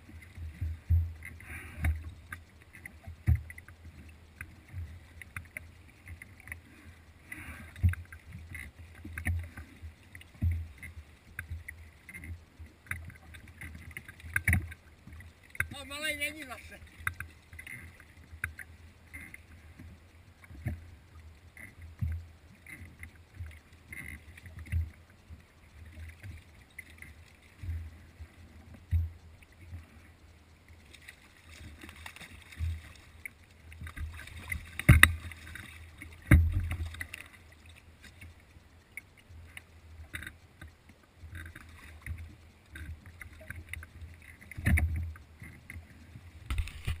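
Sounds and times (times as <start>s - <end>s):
water slapping against boat tubes: 30.9s - 37.6s
fish thrashing and splashing: 46.5s - 47.0s.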